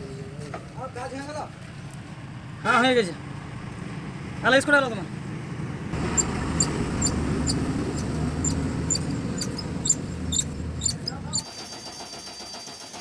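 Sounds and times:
hand pump squeaking and clicking: 6.1s - 11.5s.

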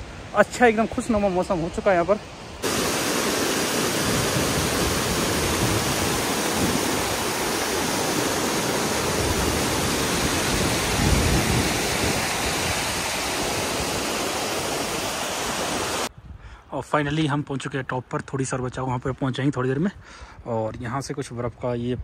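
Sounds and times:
water rushing over rocks: 2.6s - 16.1s.

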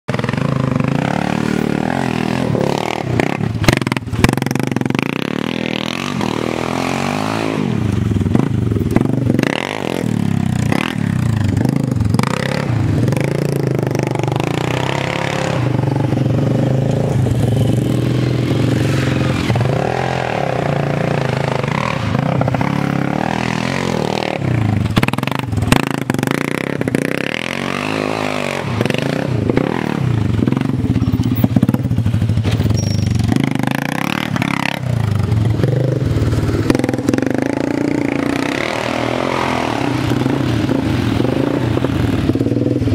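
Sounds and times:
quad engine revving: 0.1s - 42.9s.

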